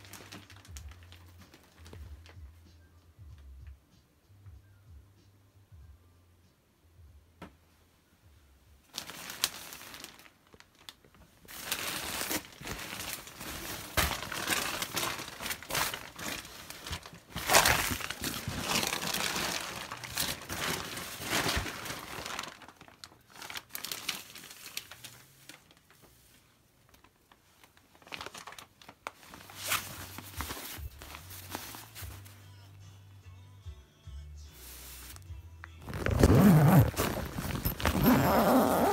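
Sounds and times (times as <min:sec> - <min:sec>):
tent fabric rustling: 0:11.5 - 0:22.8, 0:28.1 - 0:32.4, 0:34.6 - 0:35.2, 0:35.8 - 0:38.9.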